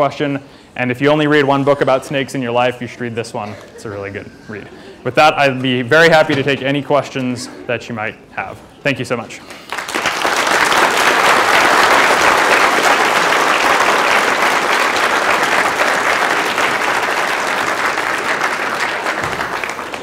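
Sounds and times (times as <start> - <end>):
audience applauding: 9.6 - 20.0.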